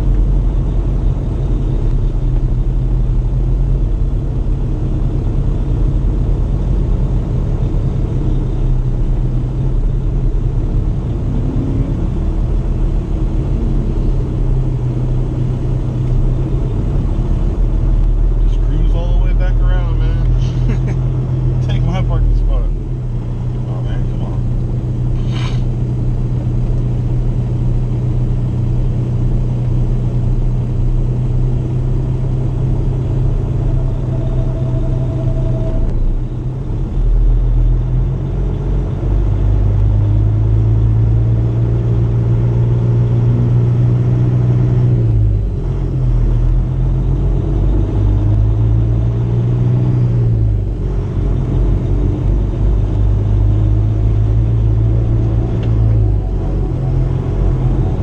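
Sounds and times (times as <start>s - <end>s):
truck diesel engine running: 0.0s - 58.0s.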